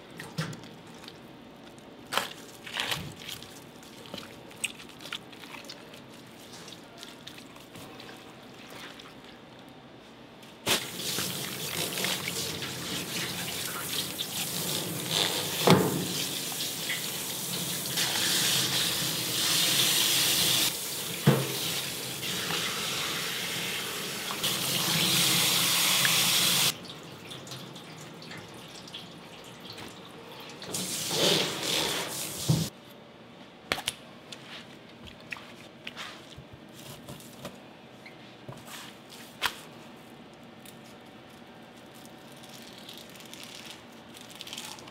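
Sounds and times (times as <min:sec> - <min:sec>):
tap water running and splashing: 0:10.7 - 0:32.7.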